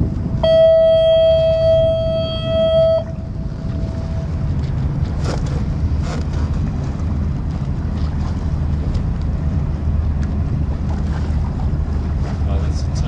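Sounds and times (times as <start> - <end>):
boat motor rumble: 0.0 - 13.0
water splashing: 0.0 - 13.0
wind noise on microphone: 0.0 - 13.0
faint whistle buoy tone: 0.3 - 4.5.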